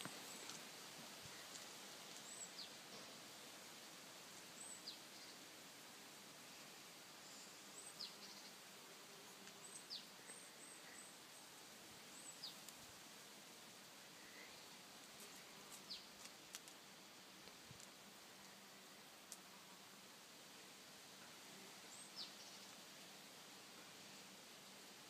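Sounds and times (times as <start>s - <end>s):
small birds chirping: 1.3s - 3.1s, 7.2s - 8.7s, 9.3s - 12.8s.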